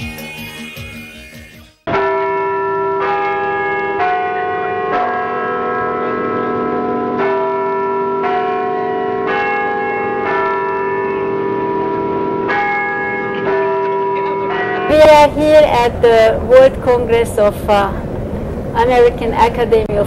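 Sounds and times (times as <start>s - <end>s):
bells ringing: 1.9s - 16.6s.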